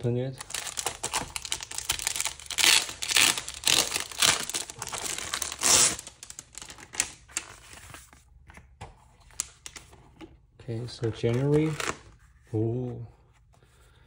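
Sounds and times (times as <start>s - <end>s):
packaging crinkling and tearing: 0.4s - 8.1s.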